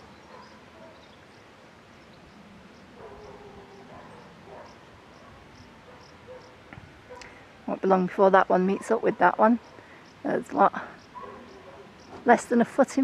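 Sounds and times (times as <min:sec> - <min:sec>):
distant animal calling: 0:02.8 - 0:07.5, 0:08.7 - 0:12.3.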